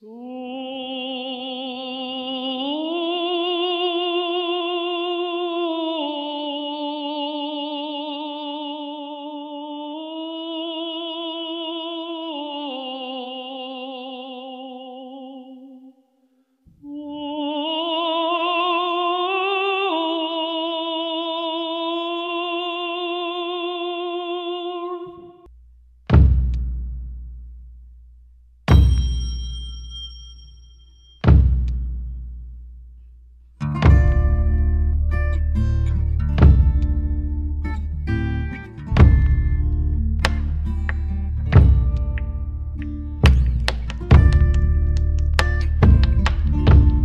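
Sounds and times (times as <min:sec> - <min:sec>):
person singing operatically: 0:00.0 - 0:16.0, 0:16.8 - 0:25.5.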